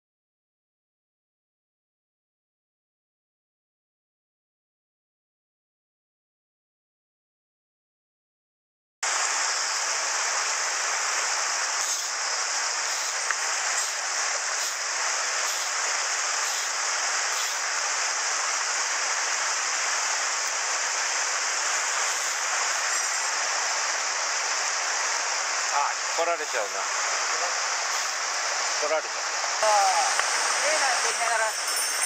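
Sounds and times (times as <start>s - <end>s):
stream flowing over rocks: 9.1s - 32.0s.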